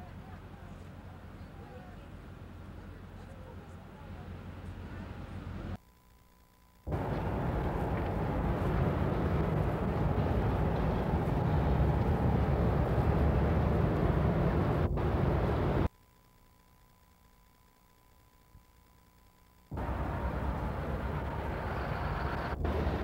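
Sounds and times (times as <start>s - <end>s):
rumble of passing traffic: 6.9s - 15.9s, 19.7s - 23.0s.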